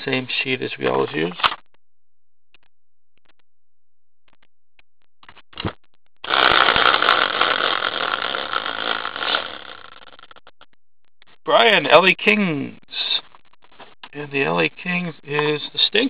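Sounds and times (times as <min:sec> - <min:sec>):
prize wheel rattling buzz: 0:06.2 - 0:10.6.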